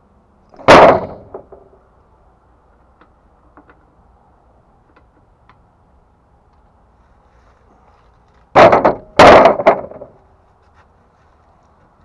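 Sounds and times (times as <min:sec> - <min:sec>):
heavy thumps: 0:00.6 - 0:01.7, 0:08.5 - 0:10.2.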